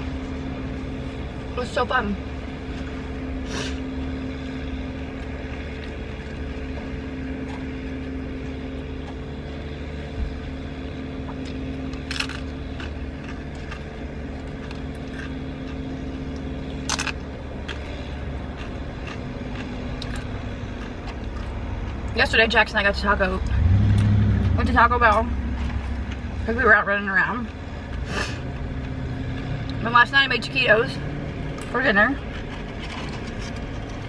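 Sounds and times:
low engine hum: 0:00.0 - 0:34.0
chips crunching when bitten: 0:11.3 - 0:22.1.

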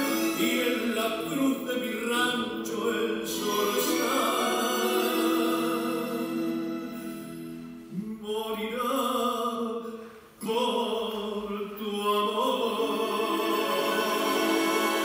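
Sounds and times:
tango music: 0:00.0 - 0:08.2, 0:12.6 - 0:15.0.

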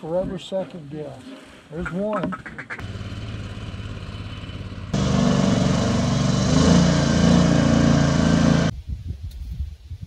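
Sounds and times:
small engine running: 0:02.8 - 0:08.7.

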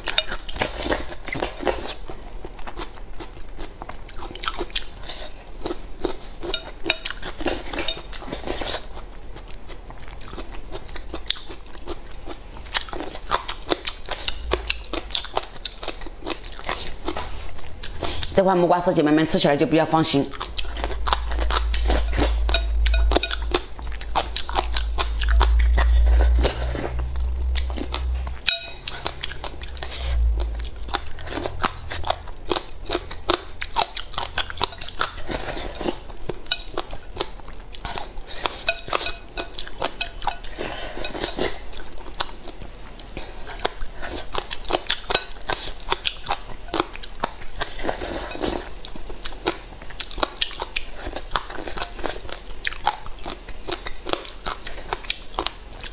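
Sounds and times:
crunchy chewing: 0:00.0 - 0:18.4, 0:20.3 - 0:55.9
deep low rumble: 0:20.4 - 0:34.7.

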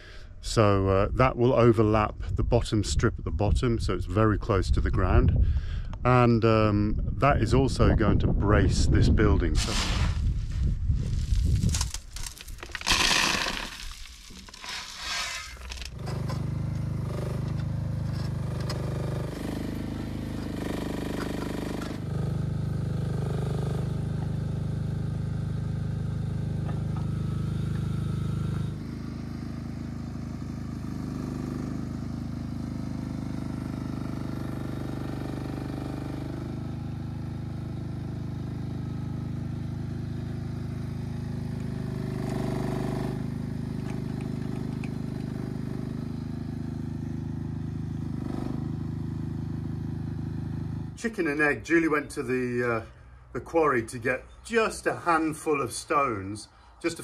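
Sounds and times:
construction machine engine running: 0:08.8 - 0:56.0
stones crashing and scraping: 0:09.6 - 0:16.4.

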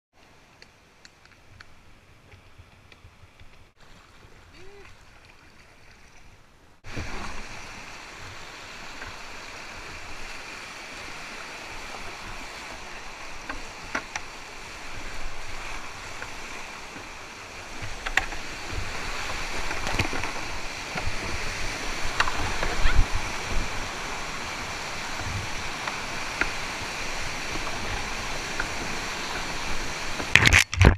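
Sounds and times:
whitewater rapids rushing: 0:06.8 - 0:30.3.

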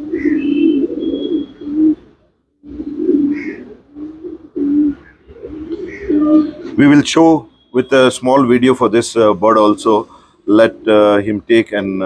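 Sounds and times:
pigeons cooing: 0:00.0 - 0:07.0, 0:09.4 - 0:11.4.

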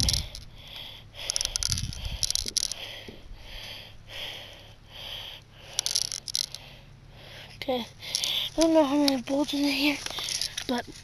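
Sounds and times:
bbs clicking and rattling: 0:00.0 - 0:00.6, 0:01.2 - 0:03.0, 0:05.7 - 0:06.7, 0:08.0 - 0:10.8.

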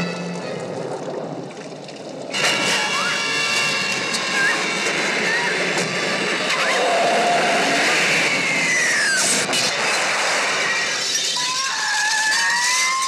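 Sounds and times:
hissing rush with falling whine: 0:02.6 - 0:13.0
shrill whistle-like tone: 0:11.1 - 0:13.0.

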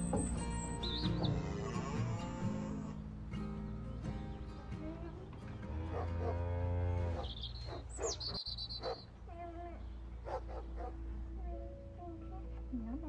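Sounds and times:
cow mooing: 0:01.2 - 0:03.0, 0:05.6 - 0:07.3.

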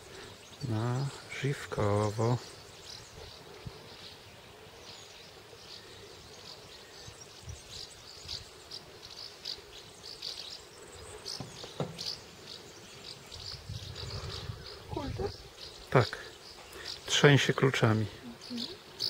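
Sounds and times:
faint outdoor background noise: 0:00.0 - 0:19.0
insects chirping: 0:00.0 - 0:19.0.

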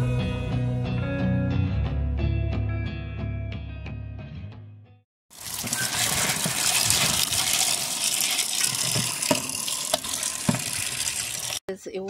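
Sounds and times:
hand stirring beans in water: 0:05.3 - 0:11.6
tap water gushing into metal basin: 0:05.3 - 0:11.6.

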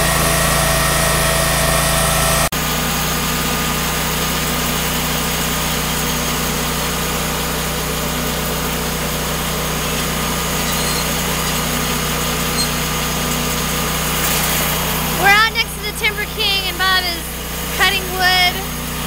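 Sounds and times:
sawmill engine running: 0:00.0 - 0:19.0.

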